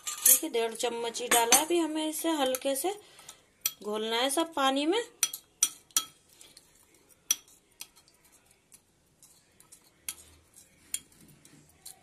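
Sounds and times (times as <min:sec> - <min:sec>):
spoon stirring in a glass bowl: 0:01.2 - 0:03.9, 0:05.1 - 0:12.0.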